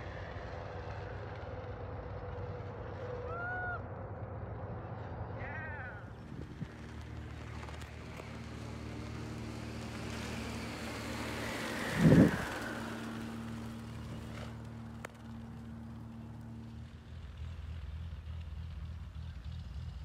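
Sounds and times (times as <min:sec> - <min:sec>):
steady low hum: 0:00.0 - 0:20.0
parachute air rushing hiss: 0:11.3 - 0:13.9
wind gust on microphone: 0:11.8 - 0:13.1.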